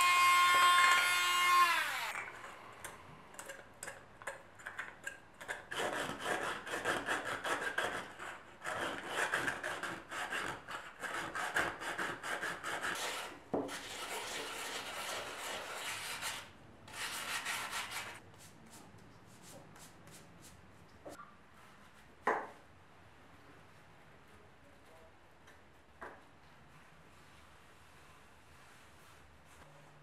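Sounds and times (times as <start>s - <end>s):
sandpaper scraping: 5.8s - 18.6s.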